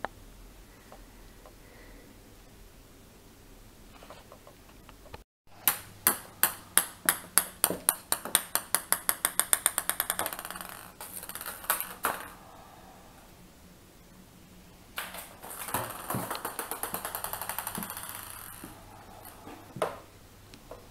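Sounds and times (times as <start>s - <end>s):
ping pong ball bouncing on tiles: 5.6s - 12.4s, 15.0s - 20.0s.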